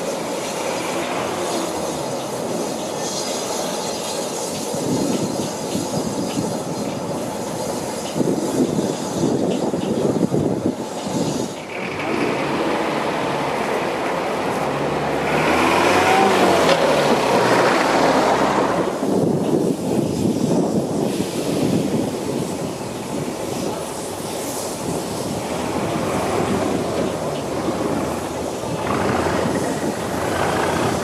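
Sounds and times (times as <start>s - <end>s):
diesel locomotive rumble: 0.0s - 31.0s
steam locomotive moving: 0.0s - 31.0s
lorry engine running: 25.4s - 31.0s.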